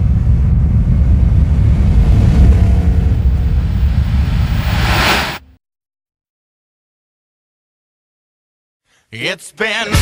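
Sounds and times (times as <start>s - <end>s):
loud low rumble: 0.0s - 5.3s
hiss swelling into whoosh: 1.8s - 5.4s.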